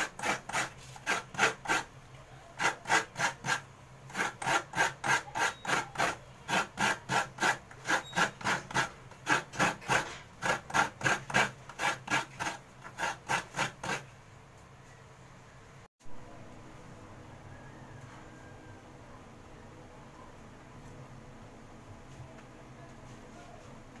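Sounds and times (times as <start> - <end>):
coconut scraped on grater blade: 0.0 - 1.9, 2.6 - 14.1.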